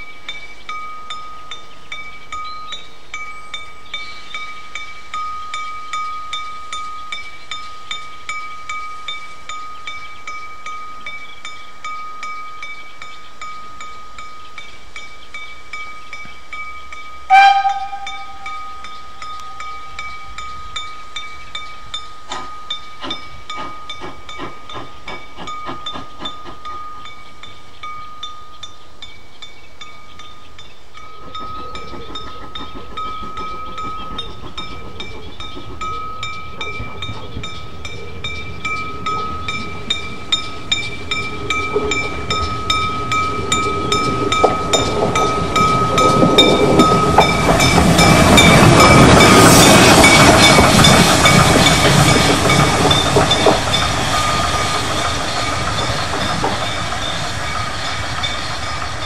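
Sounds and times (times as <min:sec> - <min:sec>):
locomotive bell ringing: 0:00.0 - 0:59.0
steam locomotive exhaust puffs: 0:21.9 - 0:27.2, 0:31.2 - 0:59.0.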